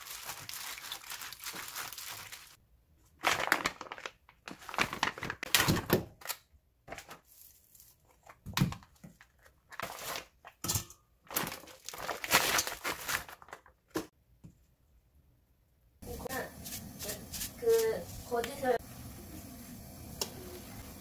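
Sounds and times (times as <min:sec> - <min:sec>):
plastic packaging crinkling: 0:00.0 - 0:02.6, 0:03.2 - 0:06.3, 0:06.9 - 0:10.6, 0:11.2 - 0:13.9.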